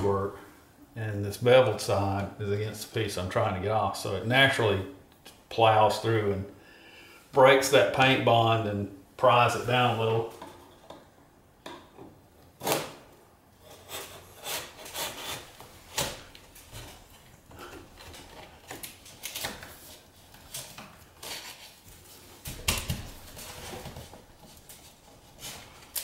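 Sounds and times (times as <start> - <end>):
blade scraping painted wood: 13.6 - 16.1.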